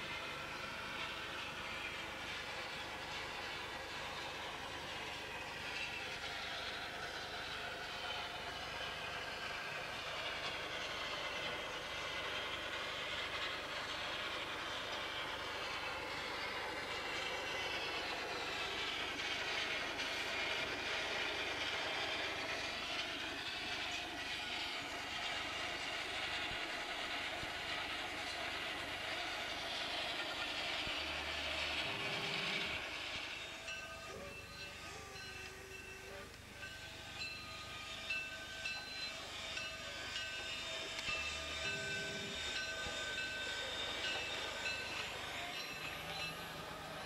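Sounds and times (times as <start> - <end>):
wooden toy train rattling on track: 0.0 - 47.0.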